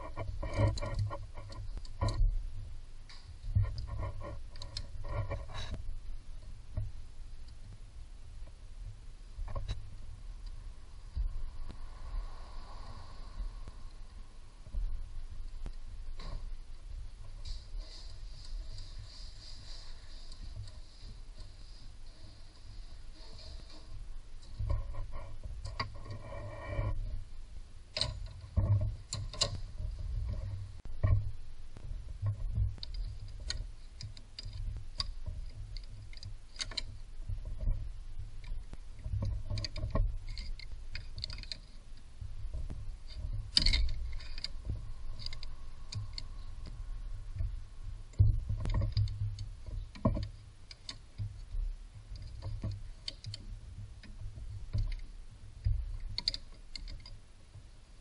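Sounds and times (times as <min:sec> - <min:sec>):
low rumble: 0:01.1 - 0:26.2, 0:41.8 - 0:50.0
tools clicking and knocking: 0:32.2 - 0:41.8, 0:42.5 - 0:46.8, 0:48.1 - 0:57.2.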